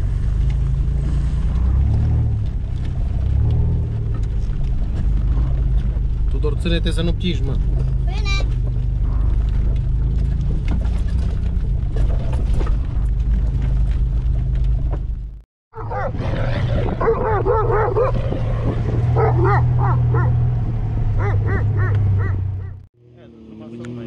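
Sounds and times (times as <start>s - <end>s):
vehicle engine running: 0.0s - 24.0s
knocks and rattles: 1.6s - 15.4s
dog barking: 15.8s - 18.3s, 19.0s - 20.4s, 21.2s - 22.8s.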